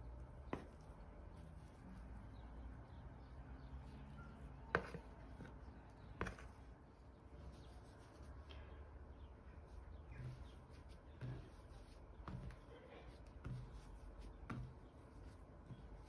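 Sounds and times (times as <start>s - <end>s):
spatula scraping dough: 4.2s - 6.7s, 9.8s - 16.0s.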